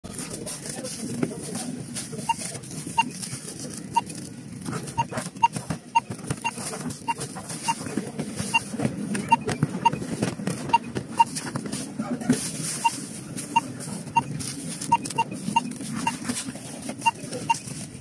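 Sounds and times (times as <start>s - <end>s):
barcode scanner beeps: 2.2s - 3.3s, 3.9s - 4.2s, 4.9s - 10.1s, 10.7s - 11.4s, 12.8s - 16.2s, 17.0s - 17.8s.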